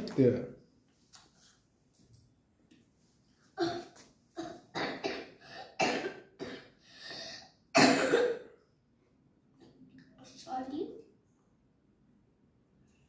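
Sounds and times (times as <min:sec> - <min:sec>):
boy coughing: 0:03.6 - 0:08.5.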